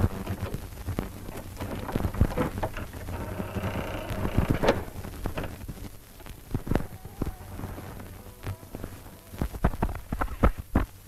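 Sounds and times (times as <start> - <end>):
irregular clicks and thumps: 0.0 - 11.0
rain-like rumbling hiss: 0.0 - 11.0
faint high tones: 6.6 - 9.6.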